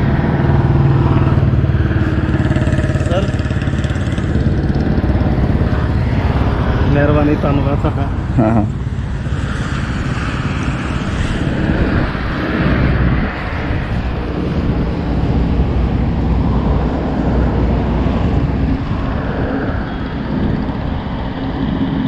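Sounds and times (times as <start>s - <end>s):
roadside traffic noise: 0.0s - 22.0s
vehicles passing: 0.0s - 22.0s
wind rumbling on microphone: 0.0s - 22.0s.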